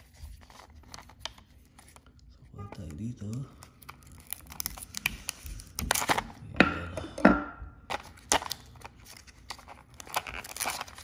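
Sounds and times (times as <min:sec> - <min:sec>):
paper and plastic tearing: 0:07.9 - 0:11.0.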